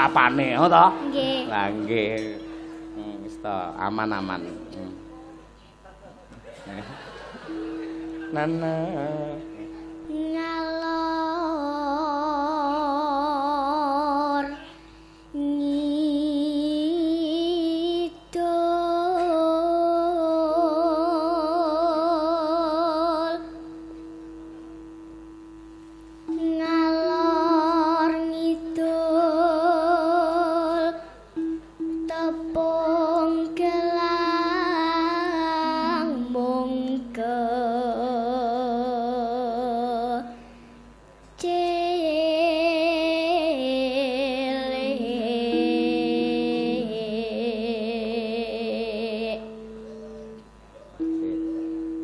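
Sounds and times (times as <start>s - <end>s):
girl singing through microphone: 0.0s - 5.8s, 8.3s - 24.0s, 26.2s - 51.2s
low sustained tone: 0.0s - 5.9s, 6.5s - 52.0s.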